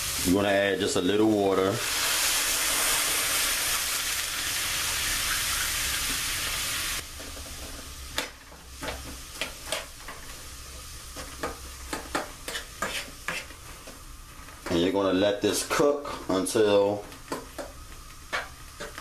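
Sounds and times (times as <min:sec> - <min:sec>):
water sizzling in frying pan: 0:00.0 - 0:15.8
utensil scraping against pan: 0:11.9 - 0:14.0, 0:18.3 - 0:19.0.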